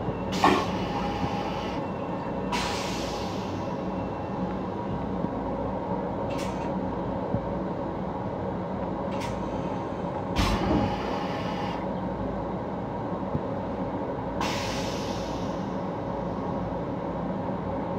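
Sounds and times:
train rumble: 0:00.0 - 0:17.9
short air hisses: 0:14.4 - 0:15.6.

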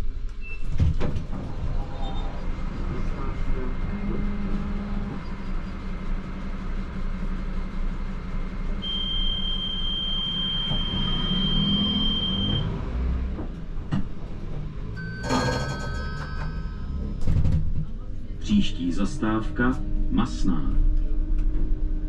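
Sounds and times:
tram wheels rumbling: 0:00.0 - 0:08.9, 0:10.3 - 0:22.0
high whine: 0:18.3 - 0:22.0.

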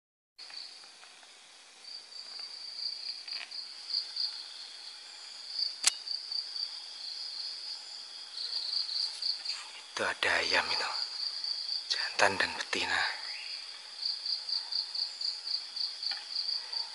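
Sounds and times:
background hiss: 0:00.4 - 0:16.9
insects chirring: 0:00.4 - 0:16.9
sharp click: 0:05.8 - 0:06.0.

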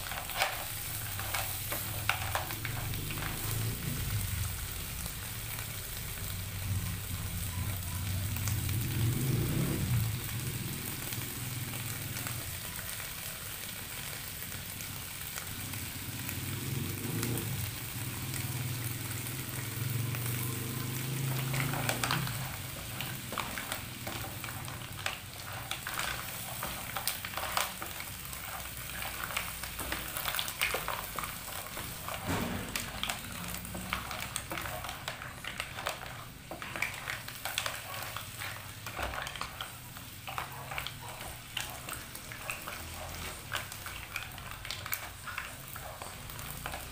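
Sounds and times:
spatula stirring shells: 0:00.0 - 0:06.3, 0:17.0 - 0:46.9
mussels sizzling in a wok: 0:00.0 - 0:46.9
sharp crackles and pops: 0:14.8 - 0:46.9.

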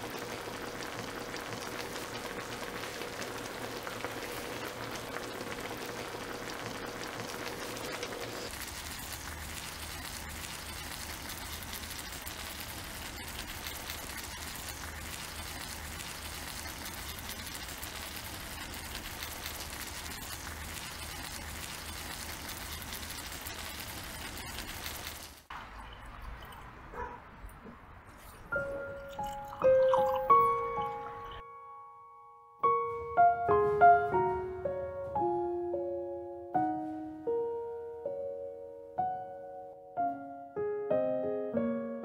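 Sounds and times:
food sizzling on griddle pan: 0:00.0 - 0:25.5.

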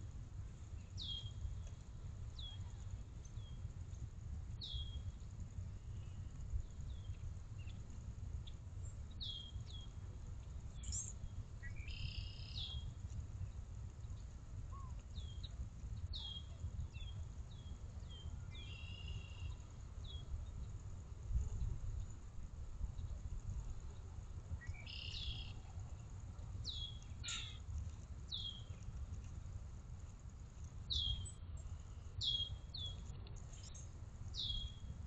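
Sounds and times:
low steady rumble: 0:00.0 - 0:35.0
bird chirping: 0:10.8 - 0:12.9, 0:24.6 - 0:25.6, 0:26.7 - 0:27.6, 0:28.3 - 0:28.8, 0:30.9 - 0:31.4, 0:32.2 - 0:33.8, 0:34.4 - 0:34.9
buzzy bird calls: 0:27.2 - 0:27.6.

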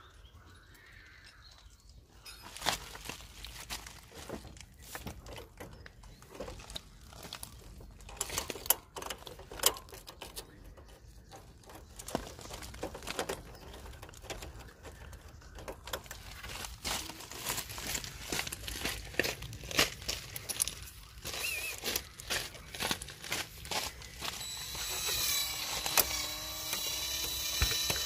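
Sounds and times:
metal clicks and knocks: 0:04.3 - 0:06.9, 0:07.6 - 0:16.8.

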